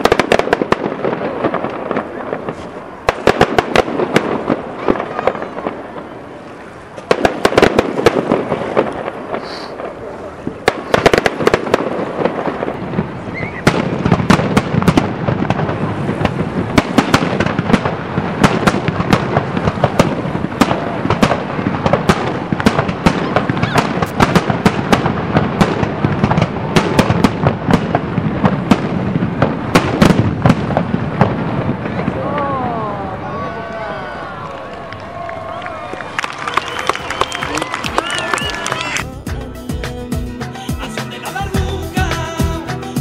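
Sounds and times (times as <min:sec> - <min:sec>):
continuous fireworks rumble: 0:00.0 - 0:39.1
fireworks bangs: 0:00.0 - 0:43.0.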